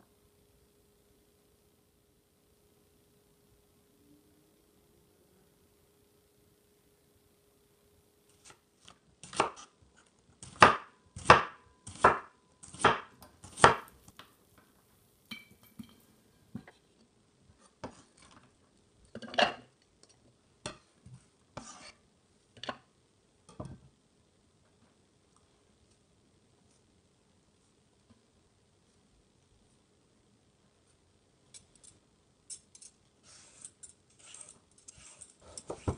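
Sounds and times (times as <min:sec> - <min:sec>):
knife chopping on wooden board: 0:10.4 - 0:13.9.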